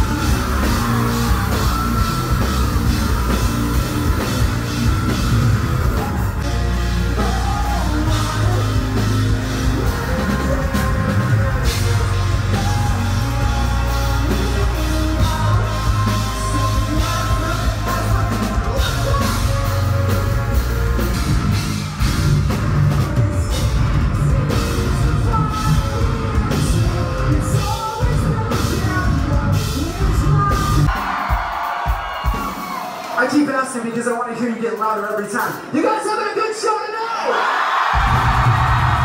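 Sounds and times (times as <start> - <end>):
rock band playing live: 0.0 - 35.7, 37.8 - 39.0
person singing: 7.0 - 21.1, 22.8 - 30.9.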